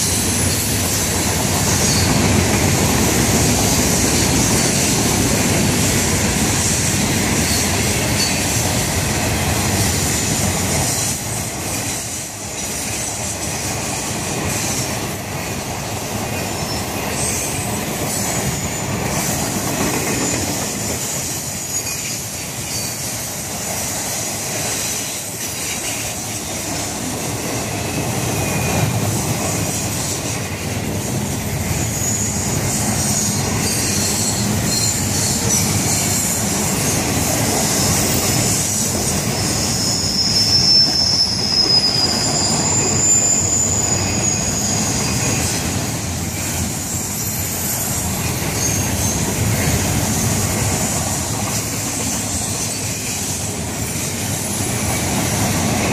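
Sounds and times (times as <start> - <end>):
train wheels rumbling on rail: 0.0 - 55.9
high-pitched wheel squeal: 0.1 - 2.3, 21.3 - 23.1, 31.8 - 37.1, 37.7 - 50.5.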